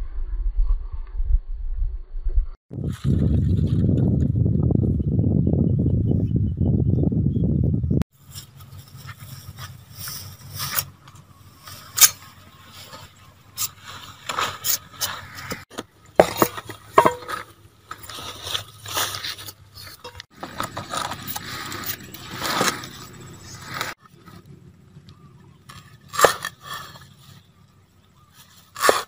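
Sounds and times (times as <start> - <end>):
banana leaves rustling and crinkling: 8.2 - 15.7, 16.7 - 24.4.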